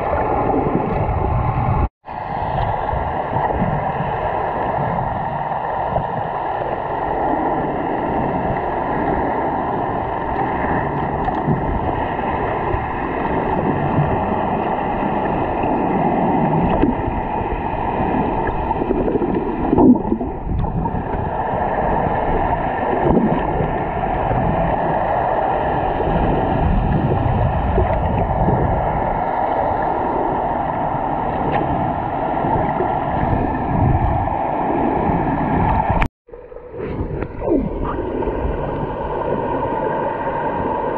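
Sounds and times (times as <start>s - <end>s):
boat engine hum underwater: 0.0s - 40.9s
water rushing underwater: 0.0s - 40.9s.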